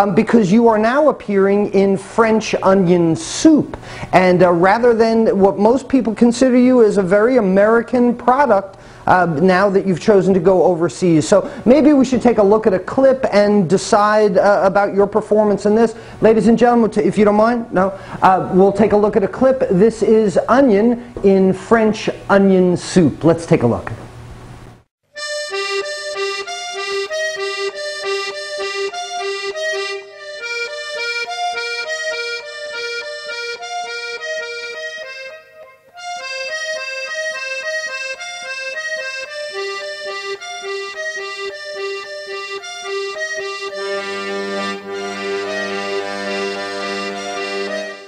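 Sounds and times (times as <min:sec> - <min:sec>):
lively accordion melody: 0:00.0 - 0:03.0, 0:03.6 - 0:19.3, 0:25.1 - 0:48.0
low held accordion chords: 0:11.3 - 0:12.6, 0:25.1 - 0:48.0.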